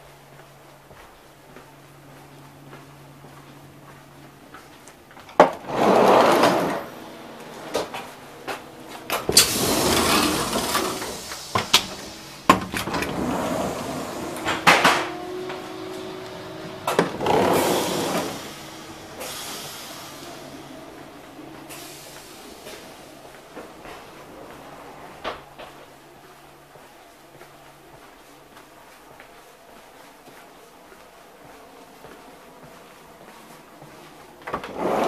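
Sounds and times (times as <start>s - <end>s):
sliding doors rushing: 5.3s - 26.1s, 34.4s - 35.0s.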